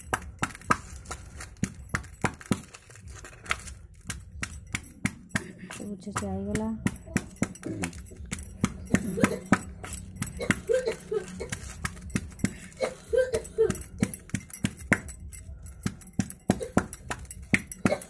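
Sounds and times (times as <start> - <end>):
pounding stick knocking steel bowl: 4.0 - 12.6.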